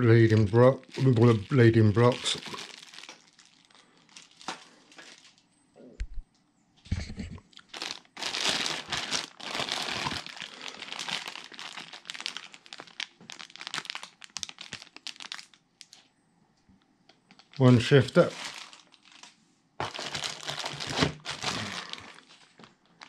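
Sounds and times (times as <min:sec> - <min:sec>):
plastic bags crinkling: 0:00.0 - 0:05.4, 0:07.6 - 0:16.0, 0:17.3 - 0:23.0.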